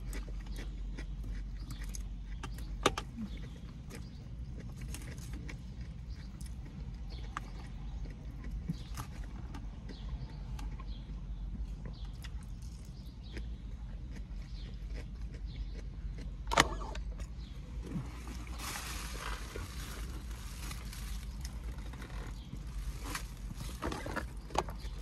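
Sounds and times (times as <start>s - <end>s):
vehicle low hum: 0.0s - 25.0s
plastic container handled: 18.0s - 25.0s
plastic rustling and crinkling: 18.1s - 25.0s.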